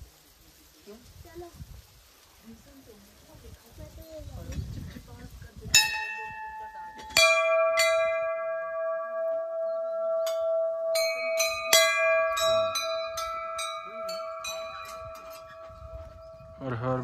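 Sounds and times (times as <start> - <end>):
quick bell strikes: 5.8 - 16.6
brass bell ringing: 5.8 - 17.0.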